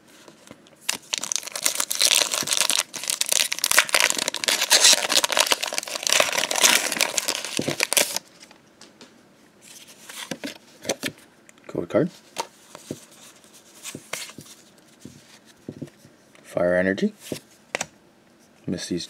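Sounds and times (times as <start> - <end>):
foil wrapper crinkling: 0.8 - 8.3.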